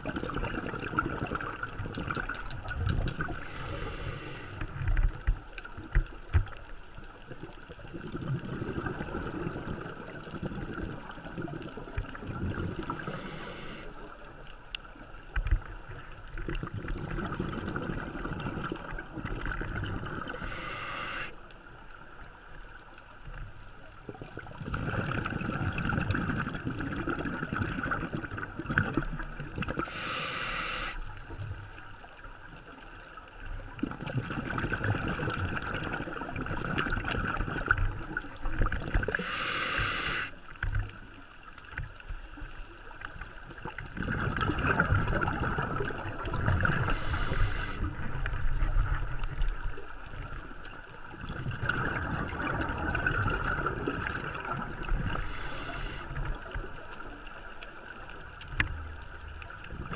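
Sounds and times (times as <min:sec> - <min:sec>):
gurgling exhaled bubbles: 0:00.0 - 0:05.4, 0:07.3 - 0:14.2, 0:15.6 - 0:21.3, 0:24.0 - 0:31.0, 0:33.6 - 0:41.0, 0:43.3 - 0:59.9
hissing regulator inhalations: 0:03.4 - 0:04.7, 0:12.9 - 0:13.9, 0:20.3 - 0:21.4, 0:29.9 - 0:31.0, 0:39.1 - 0:40.4, 0:46.8 - 0:47.9, 0:55.1 - 0:56.2.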